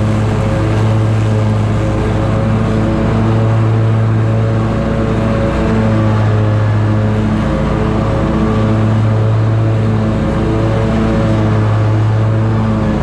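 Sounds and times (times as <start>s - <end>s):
lawn mower engine drone: 0.0s - 13.0s.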